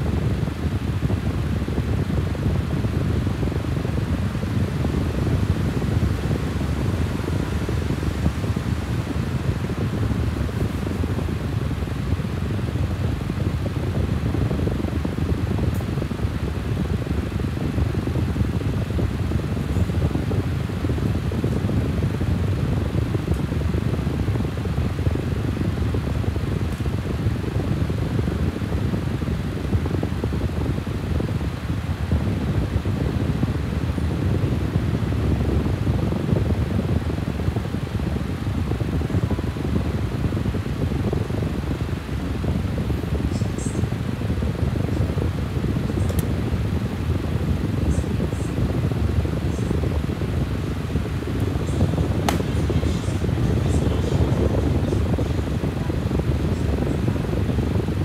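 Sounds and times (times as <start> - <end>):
low rumble of moving air: 0.0 - 58.0
faint click: 46.0 - 46.3.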